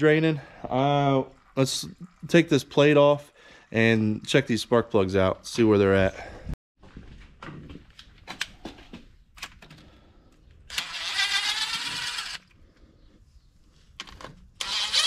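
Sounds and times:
cordless driver motor running: 0:10.7 - 0:12.5, 0:14.6 - 0:15.0.

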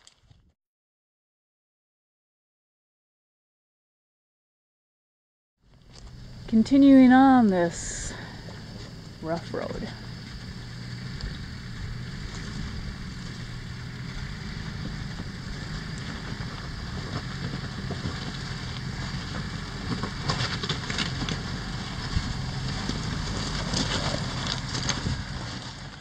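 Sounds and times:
tyres crunching over stones: 0:00.0 - 0:00.5, 0:08.4 - 0:26.0
off-road vehicle engine at low revs: 0:05.6 - 0:26.0.

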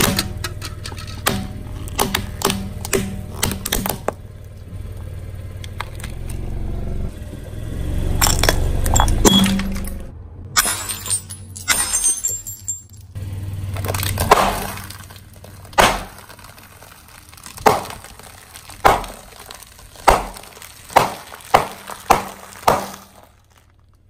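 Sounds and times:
tyre crushing brittle items: 0:00.0 - 0:04.3, 0:13.6 - 0:24.0
low steady hum: 0:00.0 - 0:24.0.

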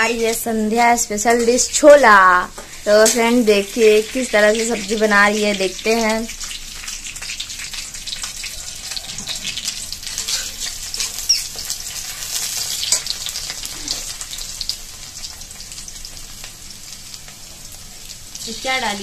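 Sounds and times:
vegetables sizzling in hot oil: 0:00.0 - 0:19.0
spatula scraping a pan: 0:08.8 - 0:13.4.

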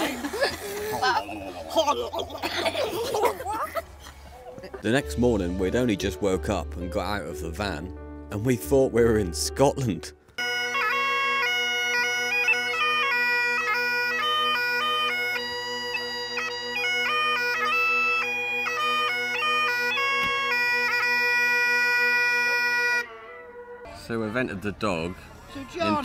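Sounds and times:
bagpipes playing: 0:10.4 - 0:26.0.

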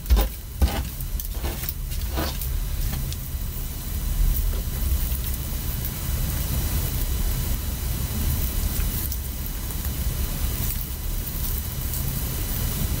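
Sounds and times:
faint irregular crackles: 0:00.0 - 0:03.3
steady low rumble and hiss: 0:00.0 - 0:13.0.

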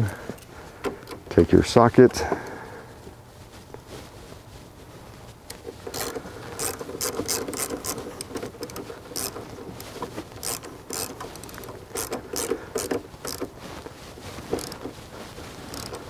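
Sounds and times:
socket ratchet clicking: 0:05.9 - 0:13.5, 0:14.6 - 0:14.8, 0:15.7 - 0:16.0.

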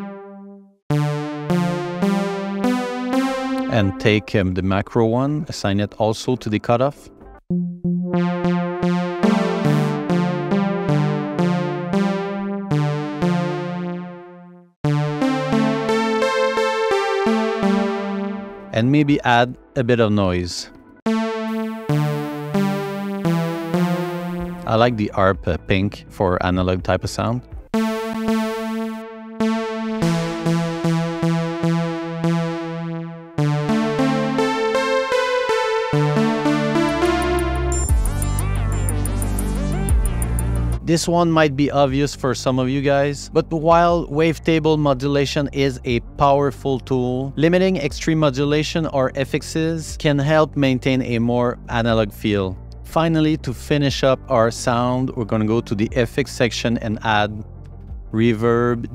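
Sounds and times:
synth chord stabs: 0:00.0 - 0:04.3, 0:07.5 - 0:19.1, 0:21.1 - 0:25.0, 0:27.8 - 0:40.9.

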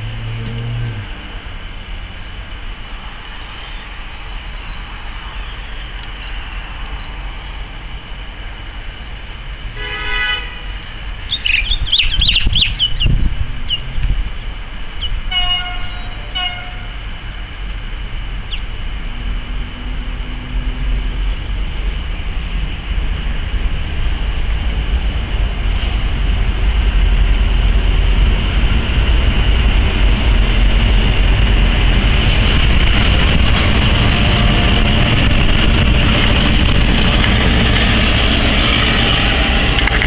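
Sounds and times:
train horn blasts: 0:00.0 - 0:01.3, 0:09.8 - 0:10.9, 0:15.3 - 0:17.4, 0:33.6 - 0:36.2
steady low rumble: 0:00.0 - 0:09.9, 0:10.6 - 0:40.0
birds chirping: 0:04.6 - 0:07.2, 0:11.2 - 0:13.9, 0:15.0 - 0:16.9, 0:18.4 - 0:18.7.

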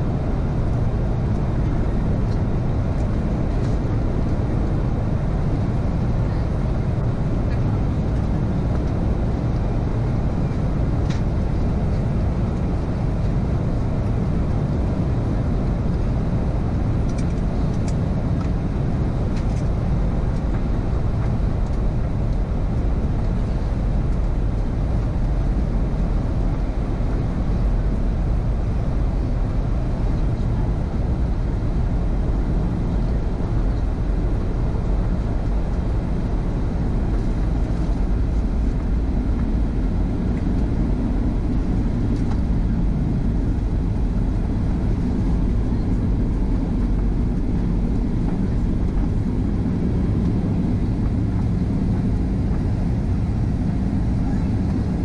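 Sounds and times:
airplane cabin rumble: 0:00.0 - 0:55.0.

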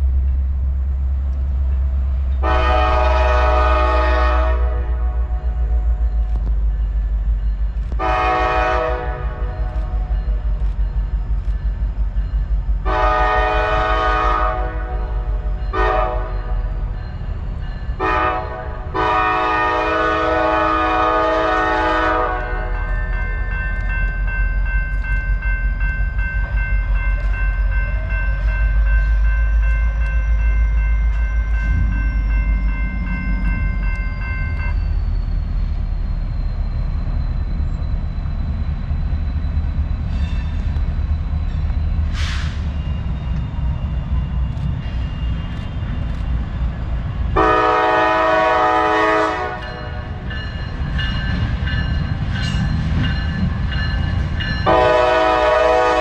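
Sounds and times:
locomotive air horn blasts: 0:02.4 - 0:06.0, 0:08.0 - 0:10.2, 0:12.8 - 0:16.7, 0:18.0 - 0:22.9, 0:47.4 - 0:50.2, 0:54.6 - 0:56.0.

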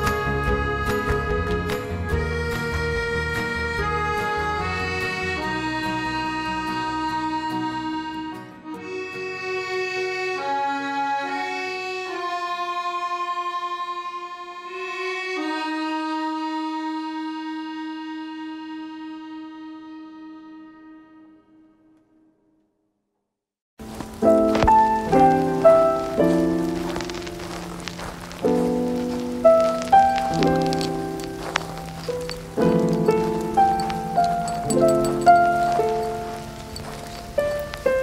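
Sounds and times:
reedy chords: 0:23.8 - 0:38.0.

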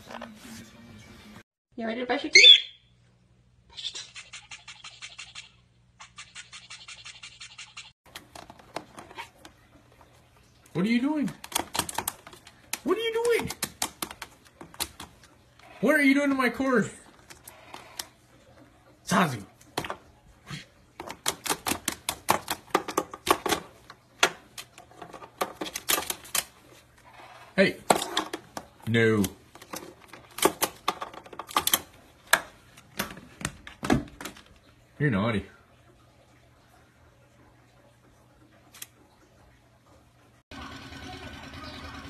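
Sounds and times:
bird claws clicking on plastic: 0:11.3 - 0:15.1, 0:21.0 - 0:26.5, 0:29.2 - 0:32.5.

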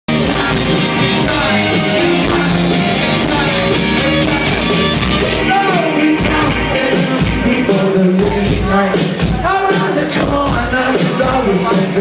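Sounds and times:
live rock band playing: 0:00.1 - 0:12.0
man singing: 0:00.1 - 0:12.0.

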